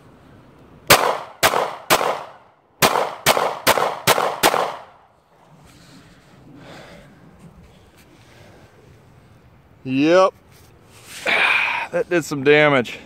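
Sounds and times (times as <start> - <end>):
pistol shots: 0.9 - 5.0.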